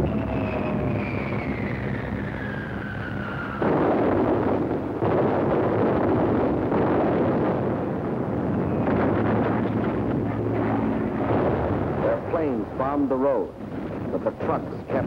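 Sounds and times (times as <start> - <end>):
bomb whistling down: 0.0 - 3.6
explosions rumbling: 0.0 - 15.0.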